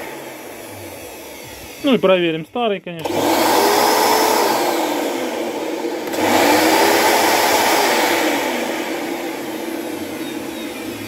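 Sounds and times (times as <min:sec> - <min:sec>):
vacuum suction motor running: 0:00.0 - 0:11.0.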